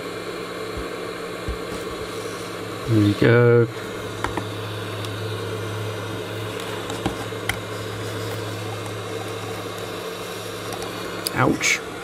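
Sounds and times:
hot air gun blowing: 0:00.0 - 0:12.0.

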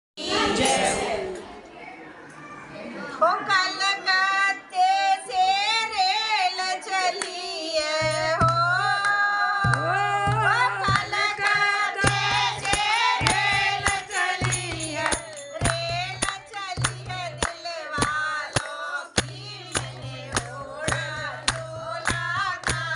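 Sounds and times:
women singing devotional song: 0:00.2 - 0:01.4, 0:03.2 - 0:22.9
hand claps: 0:07.2 - 0:22.9.

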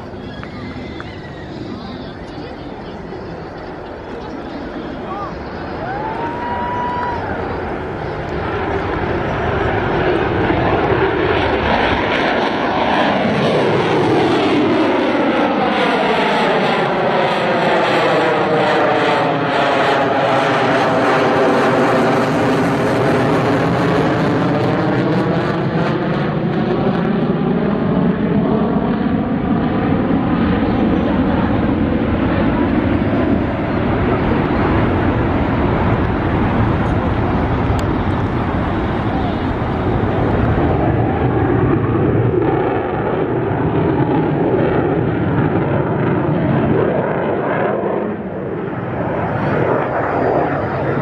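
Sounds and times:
fighter jet flying past: 0:00.0 - 0:51.0.

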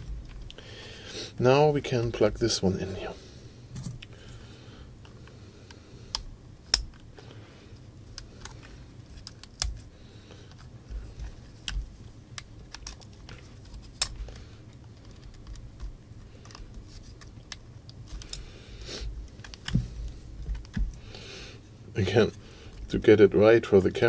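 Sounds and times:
handling rustle: 0:07.6 - 0:21.0.

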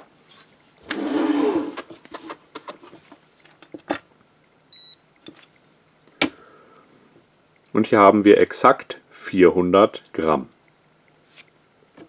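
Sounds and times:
short electronic beep: 0:04.7 - 0:05.0.

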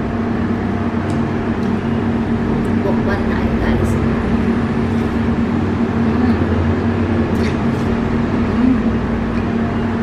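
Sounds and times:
low machine hum: 0:00.0 - 0:10.0.

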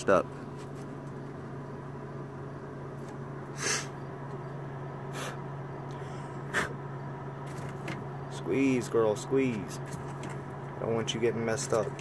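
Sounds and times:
steady low hum: 0:00.0 - 0:12.0
short breathy puffs: 0:05.1 - 0:05.4.

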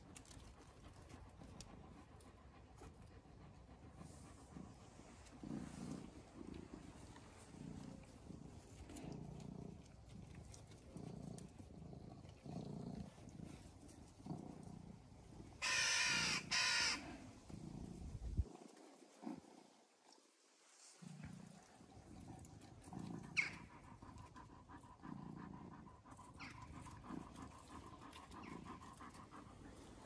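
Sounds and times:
dog play grumbles: 0:03.4 - 0:15.6.

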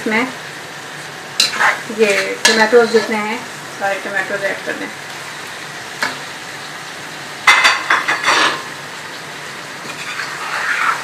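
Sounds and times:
food sizzling in a pan: 0:00.0 - 0:11.0
clattering and scraping against pan: 0:01.4 - 0:03.1, 0:07.4 - 0:08.7, 0:09.8 - 0:11.0.

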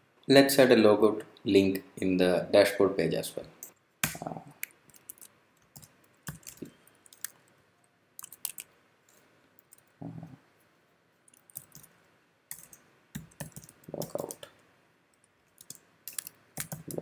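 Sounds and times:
keyboard keys clicking: 0:04.9 - 0:07.4, 0:08.2 - 0:08.6, 0:11.3 - 0:11.9, 0:12.5 - 0:14.5, 0:15.2 - 0:17.0.

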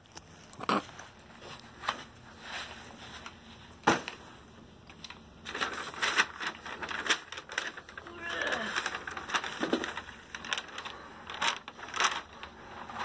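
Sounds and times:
paper rustling: 0:00.0 - 0:13.0.

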